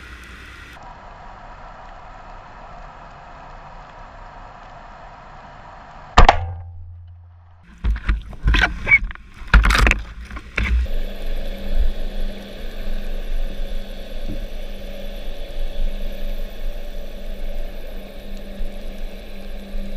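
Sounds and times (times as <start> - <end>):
boat engine hum underwater: 0.0 - 5.6, 6.9 - 19.9
underwater knocks and scrapes: 7.6 - 10.9.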